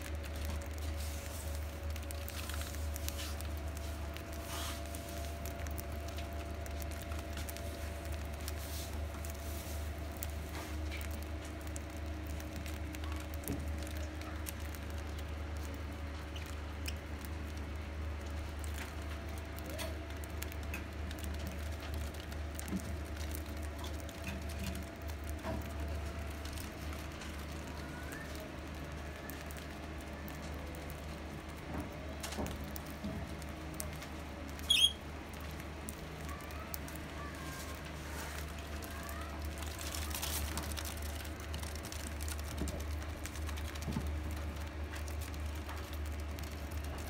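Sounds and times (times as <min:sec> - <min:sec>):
steady low hum: 0:00.0 - 0:47.0
high budgie chirp: 0:34.7 - 0:35.0.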